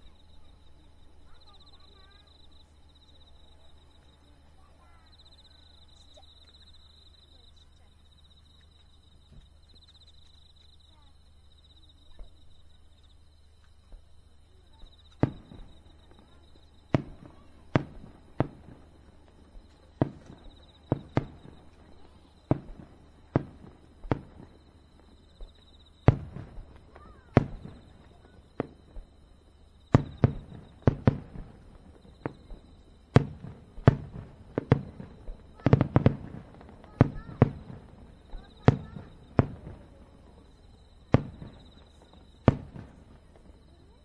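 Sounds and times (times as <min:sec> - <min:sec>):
firework shells bursting: 0:15.1 - 0:29.2, 0:29.8 - 0:43.6.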